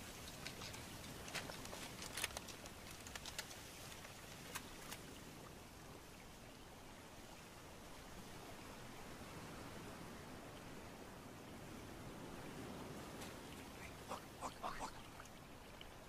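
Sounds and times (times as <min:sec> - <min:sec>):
small sharp ticks: 0:00.0 - 0:05.1
faint steady hiss: 0:00.0 - 0:16.0.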